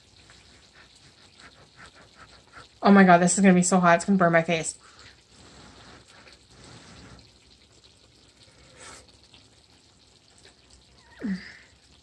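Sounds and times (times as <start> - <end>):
low steady hiss: 0.0 - 12.0
breathy puffs and mouth noises: 0.2 - 2.8.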